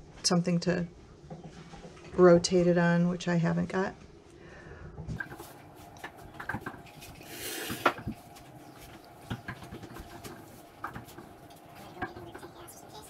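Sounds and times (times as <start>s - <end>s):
twine rustling on dough: 5.2s - 13.0s.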